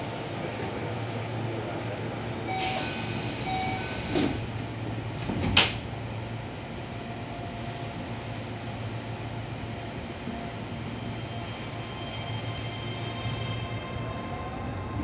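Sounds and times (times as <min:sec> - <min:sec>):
train low hum: 0:00.0 - 0:15.0
train doors hissing: 0:02.5 - 0:04.6.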